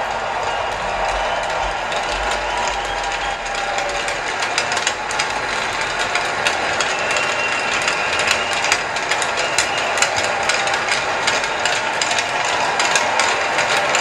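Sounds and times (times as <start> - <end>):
crowd applauding: 0.0 - 14.0.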